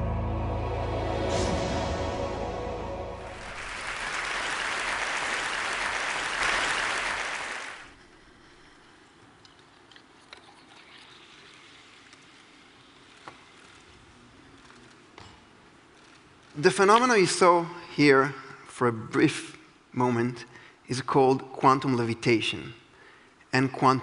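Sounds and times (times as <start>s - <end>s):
audience applauding: 3.2s - 8.0s.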